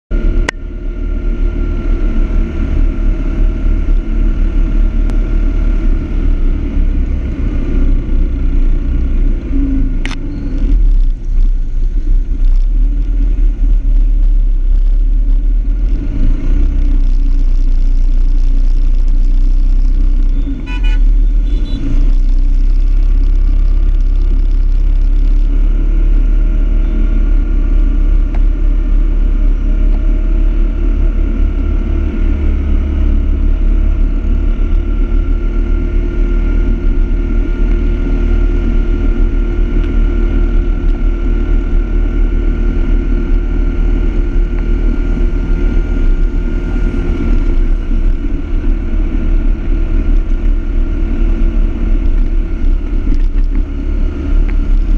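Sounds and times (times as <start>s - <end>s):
wind rumble on microphone: 0.1s - 54.9s
vehicle horn honking: 20.4s - 22.0s.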